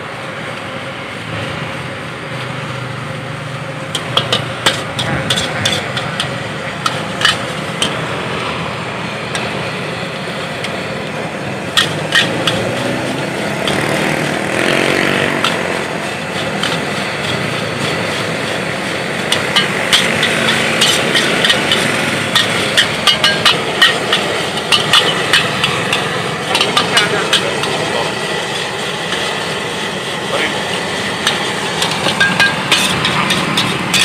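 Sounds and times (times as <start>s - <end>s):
steady rushing noise: 0.0s - 34.0s
cooking utensils clanking: 3.9s - 8.6s, 11.7s - 34.0s.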